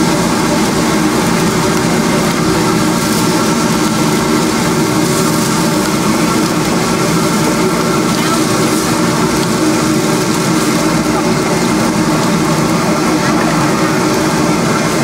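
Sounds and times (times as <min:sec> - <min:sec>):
gas burner roaring: 0:00.0 - 0:15.0.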